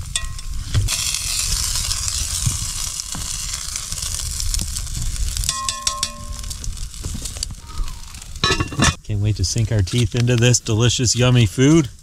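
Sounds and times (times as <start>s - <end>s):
food sizzling in pot: 0.0s - 9.0s
metal tongs clicking: 5.5s - 6.6s
metallic clink: 5.5s - 6.6s, 8.4s - 9.0s.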